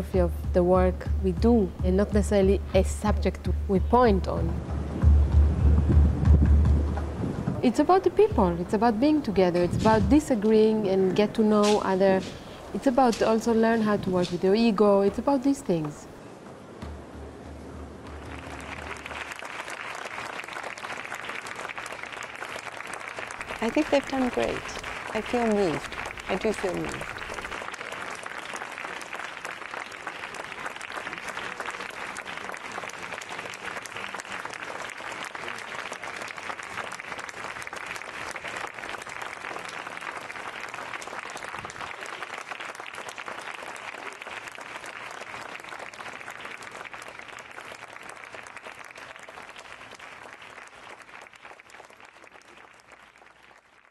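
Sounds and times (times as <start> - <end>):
audience applauding: 17.5 - 53.9.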